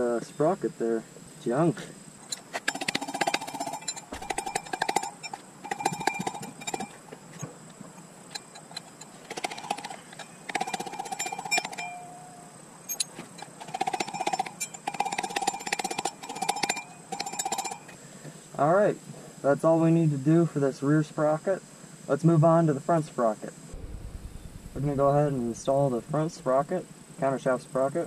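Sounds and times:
hand tools clicking and tapping: 0:02.3 - 0:12.1, 0:12.9 - 0:18.0.

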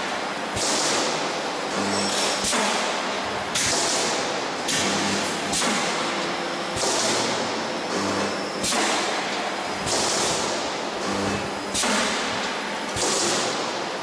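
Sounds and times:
machinery clunk: 0:00.0 - 0:13.8
machinery low hum: 0:03.0 - 0:12.9
hiss: 0:09.8 - 0:10.6, 0:11.7 - 0:13.7.

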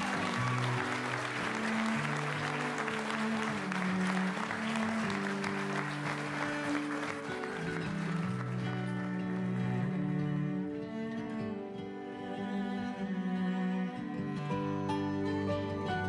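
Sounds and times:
crowd applauding: 0:00.0 - 0:10.6.

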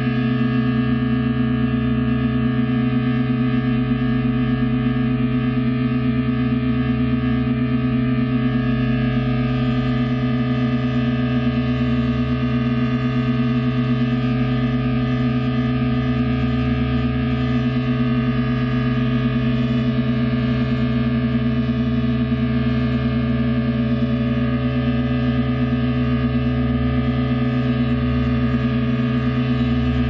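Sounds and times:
wavering low tone: 0:00.0 - 0:30.0
sustained drone chord: 0:08.5 - 0:30.0.

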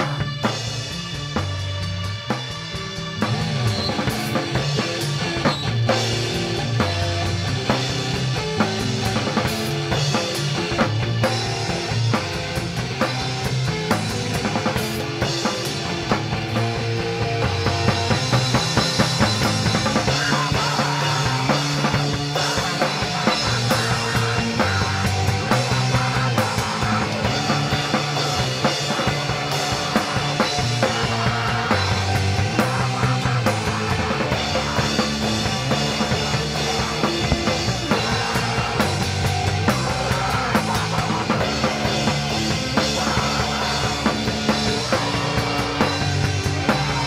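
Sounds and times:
metal band playing live: 0:00.0 - 0:47.0.

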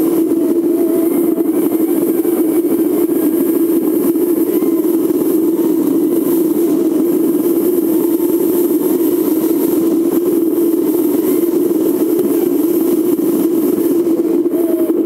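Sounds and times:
vehicle engine and tyres droning: 0:00.0 - 0:15.0.

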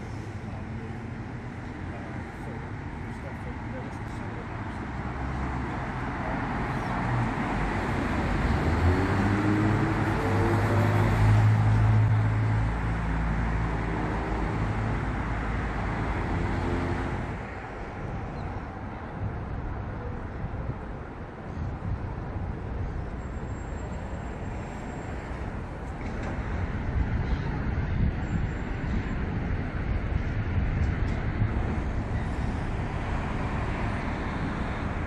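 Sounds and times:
road traffic hiss: 0:00.0 - 0:35.0
vehicle engine passing: 0:06.9 - 0:12.3.

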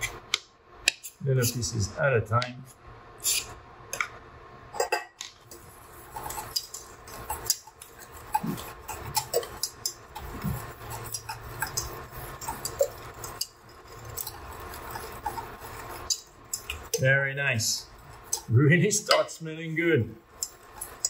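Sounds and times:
whisk scraping metal saucepan: 0:05.5 - 0:19.4, 0:20.3 - 0:21.0.

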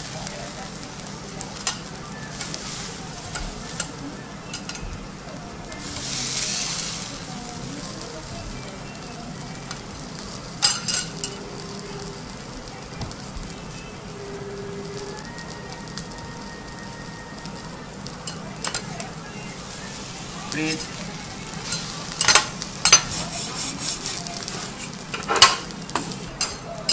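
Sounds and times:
food sizzling on a griddle: 0:00.0 - 0:26.9
metal spatulas scraping steel plate: 0:21.6 - 0:26.6.

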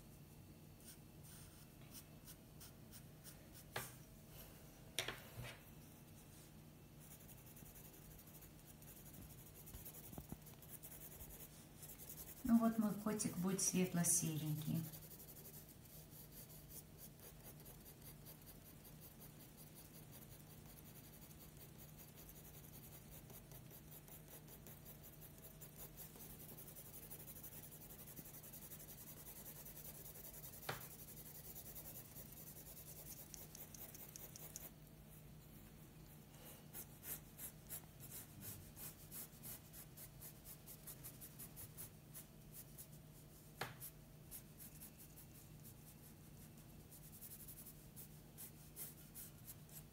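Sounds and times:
pencil scratching on paper: 0:07.0 - 0:35.2, 0:36.0 - 0:49.9.

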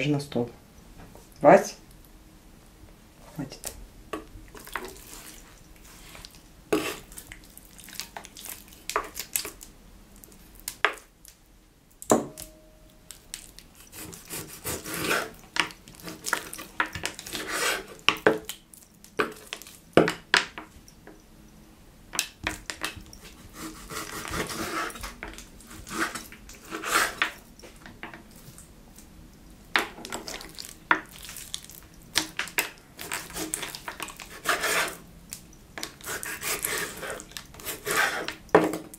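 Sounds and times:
knife sawing through meat: 0:13.8 - 0:15.4, 0:23.4 - 0:25.0, 0:25.8 - 0:27.2, 0:34.3 - 0:35.0, 0:36.0 - 0:38.3.

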